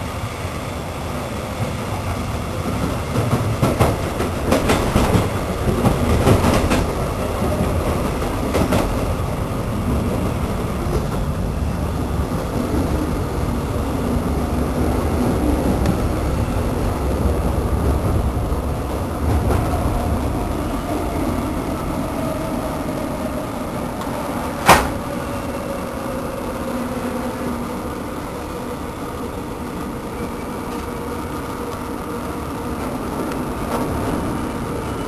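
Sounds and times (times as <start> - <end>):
train wheels rumbling on rails: 0.0 - 35.0
sharp knock: 24.6 - 24.9.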